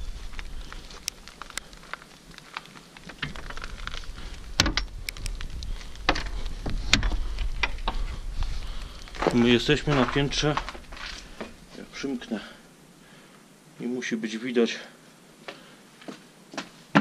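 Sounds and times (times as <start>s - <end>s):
low rumble: 3.3s - 12.3s.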